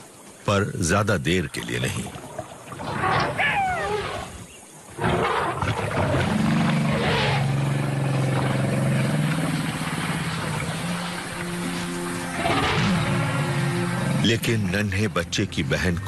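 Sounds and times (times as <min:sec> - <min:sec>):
elephant herd charging: 0:02.8 - 0:15.9
shrill animal cry: 0:02.9 - 0:04.3
low music drone: 0:06.4 - 0:16.0.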